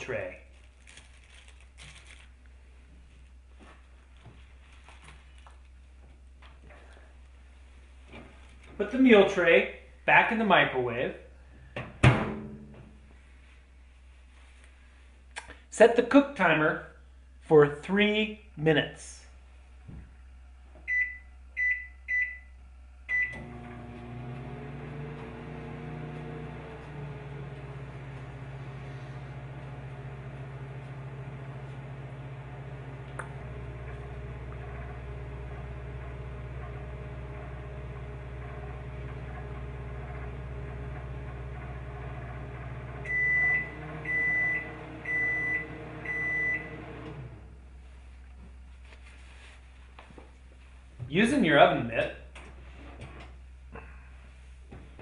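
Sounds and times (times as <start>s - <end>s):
microwave keypad beeping: 20.9s - 22.5s, 23.1s - 23.4s, 43.1s - 46.8s
microwave oven humming: 20.9s - 48.0s.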